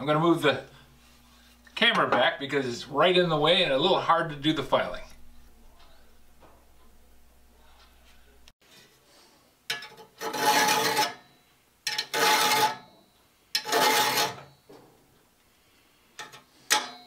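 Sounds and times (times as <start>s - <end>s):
file rasping on saw teeth: 13.6s - 14.4s.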